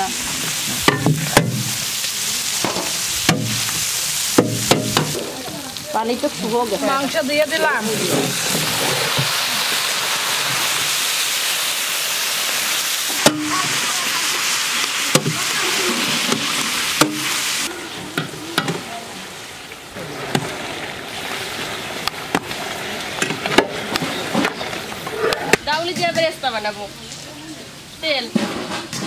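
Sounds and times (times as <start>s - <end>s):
chicken sizzling in hot oil: 0.0s - 25.0s
paddle knocking against pan: 0.8s - 1.7s, 2.6s - 3.6s, 4.4s - 5.4s, 15.1s - 15.5s, 16.2s - 17.4s
paddle scraping pan: 6.4s - 9.8s, 20.0s - 26.2s.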